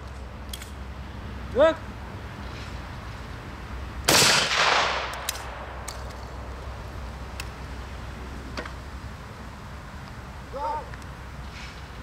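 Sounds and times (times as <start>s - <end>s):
gunshot echoing: 4.1s - 5.9s.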